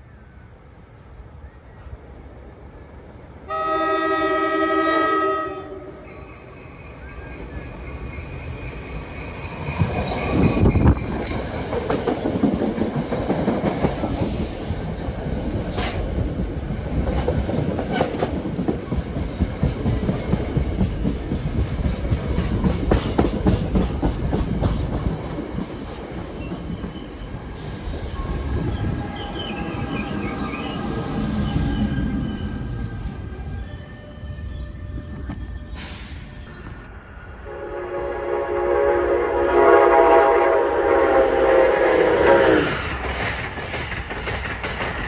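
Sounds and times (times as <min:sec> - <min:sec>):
train wheels rumbling and clicking: 0:06.0 - 0:33.1, 0:42.5 - 0:45.0.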